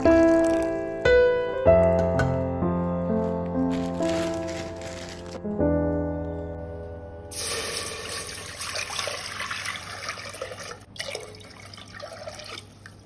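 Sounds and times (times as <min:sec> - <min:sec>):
water pouring into metal pot: 0:07.3 - 0:13.0.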